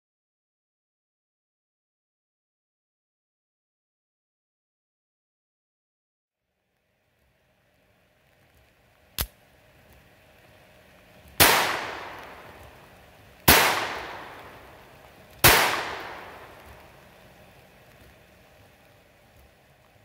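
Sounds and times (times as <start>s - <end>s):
sharp click: 9.2s - 9.4s
pistol shots with echo: 11.4s - 12.5s, 13.5s - 14.7s, 15.4s - 16.6s.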